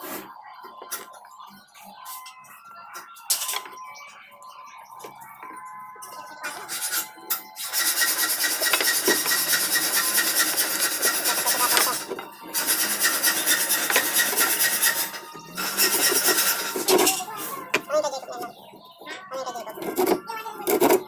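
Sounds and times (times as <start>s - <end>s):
wooden strip rasping: 7.6s - 17.4s.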